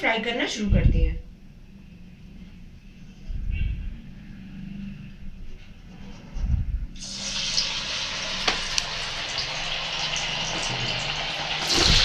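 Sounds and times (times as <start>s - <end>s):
food deep-frying in oil: 7.0s - 12.0s
sharp crackles of frying: 7.0s - 12.0s.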